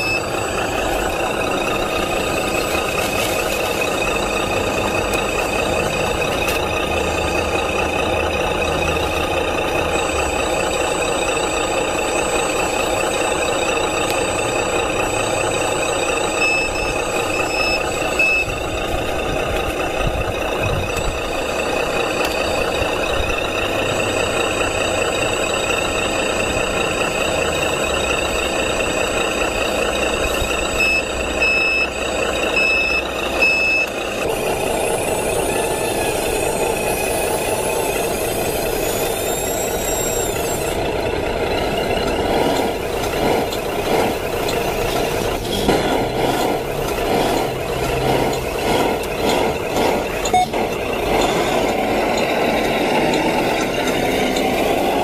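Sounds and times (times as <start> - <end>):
high wavering whine: 0.0 - 33.2
reversing alarm beeping: 0.0 - 55.0
simulated diesel engine running: 0.0 - 55.0.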